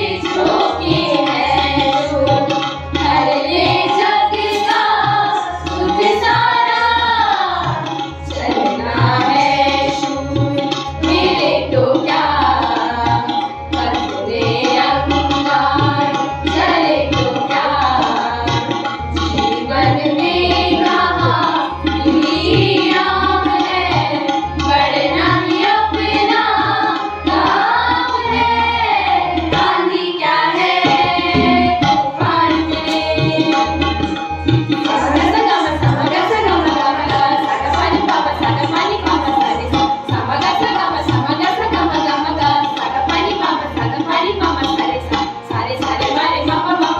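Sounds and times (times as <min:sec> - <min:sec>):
students singing together: 0:00.0 - 0:10.1, 0:11.0 - 0:18.4, 0:19.3 - 0:34.0, 0:34.8 - 0:38.3
harmonium: 0:00.0 - 0:46.9
tabla drum strokes: 0:00.0 - 0:46.9.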